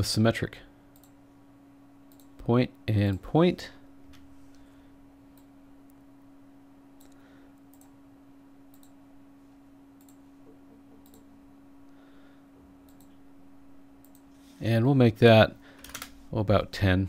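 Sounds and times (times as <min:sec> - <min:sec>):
steady low hum: 0:00.0 - 0:17.0
faint computer mouse clicks: 0:08.7 - 0:09.0, 0:10.0 - 0:10.2.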